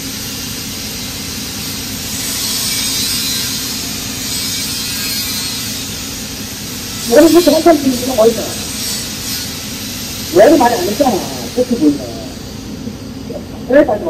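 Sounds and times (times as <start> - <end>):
welding arc hissing: 0.0 - 14.0.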